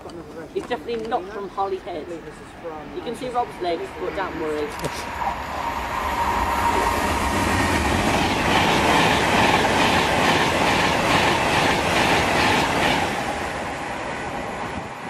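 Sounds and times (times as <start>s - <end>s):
train rushing past: 1.7s - 15.0s
train wheels clattering: 7.0s - 13.4s.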